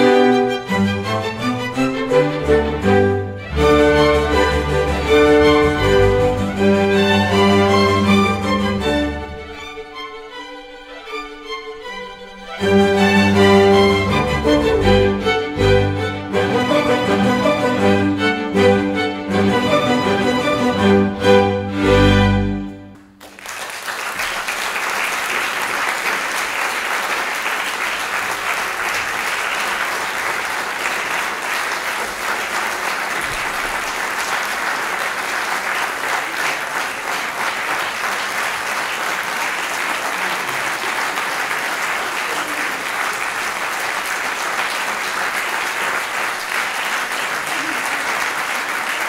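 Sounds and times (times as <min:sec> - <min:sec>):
orchestra closing chord: 0:01.7 - 0:09.3
audience applause: 0:23.0 - 0:49.0.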